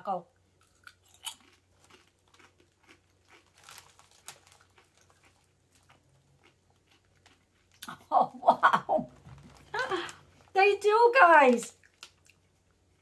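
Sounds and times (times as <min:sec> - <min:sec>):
potato chip crunching: 0:00.6 - 0:08.0, 0:11.5 - 0:12.8.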